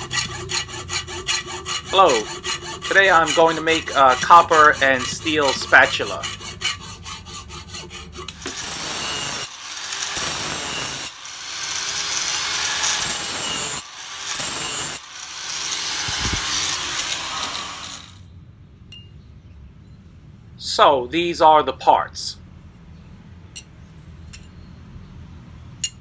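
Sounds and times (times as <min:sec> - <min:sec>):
angle grinder grinding metal: 0:00.0 - 0:18.2
hacksaw cutting metal sheet: 0:00.0 - 0:18.2.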